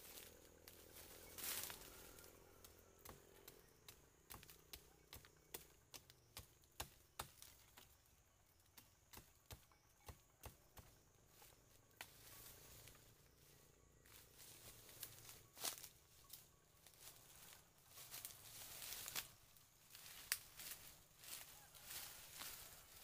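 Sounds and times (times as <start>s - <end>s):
dry leaves and twigs crackling: 0.0s - 23.0s.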